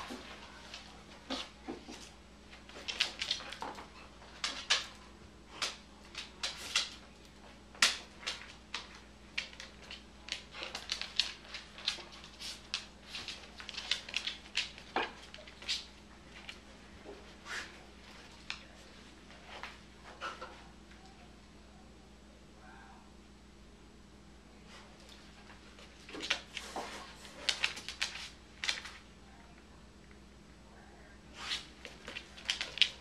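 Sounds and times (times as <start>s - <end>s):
dog claws clicking on floor: 0.0s - 16.6s, 18.0s - 18.8s, 25.0s - 29.0s, 31.5s - 33.0s.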